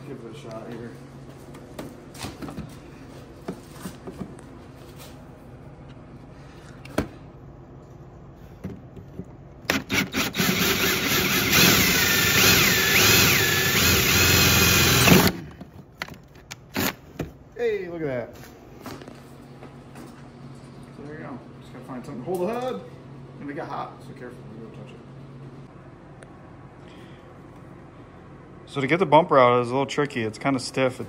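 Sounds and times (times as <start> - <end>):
cordless drill whining: 9.7 - 15.5.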